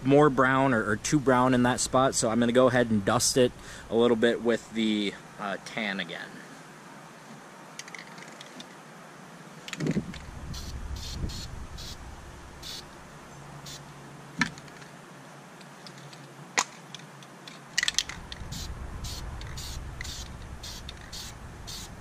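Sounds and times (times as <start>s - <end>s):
spray paint can hissing: 10.5s - 12.0s, 12.6s - 12.9s, 13.6s - 13.8s, 18.3s - 22.0s.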